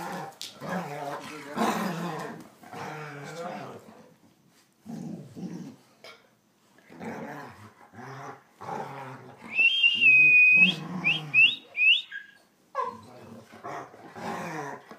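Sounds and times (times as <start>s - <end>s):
dogs growling: 0.0s - 4.2s, 4.8s - 6.2s, 6.8s - 9.6s, 10.3s - 11.6s, 12.8s - 14.9s
dog whining: 9.4s - 13.0s.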